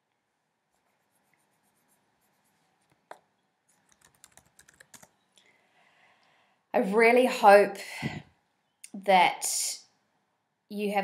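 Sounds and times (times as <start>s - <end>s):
faint clicks and taps: 2.8s - 5.5s.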